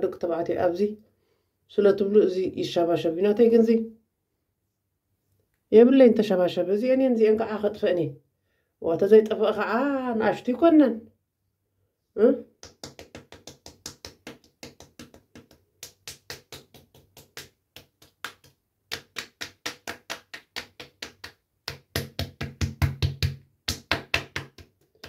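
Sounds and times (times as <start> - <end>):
fingertips tapping on skin: 12.6 - 25.0.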